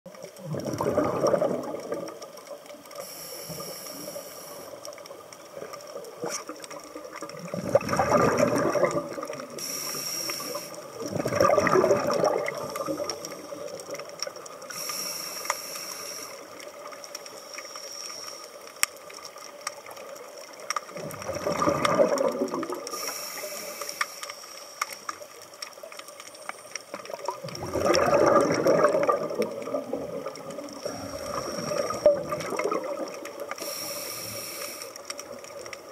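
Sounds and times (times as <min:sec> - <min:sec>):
exhaled bubbles gurgling: 0:00.1 - 0:17.7, 0:18.5 - 0:24.0, 0:25.0 - 0:35.9
regulator inhale hiss: 0:02.9 - 0:04.9, 0:09.5 - 0:11.0, 0:14.7 - 0:18.8, 0:22.8 - 0:25.0, 0:30.8 - 0:32.1, 0:33.5 - 0:35.2.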